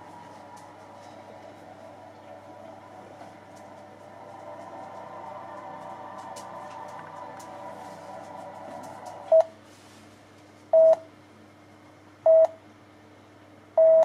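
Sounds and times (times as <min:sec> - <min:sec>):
electronic tone chord: 0:00.0 - 0:09.6.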